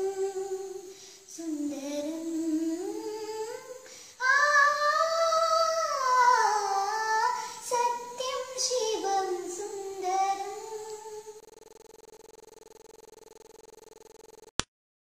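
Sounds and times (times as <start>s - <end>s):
girl singing unaccompanied: 0.0s - 11.4s.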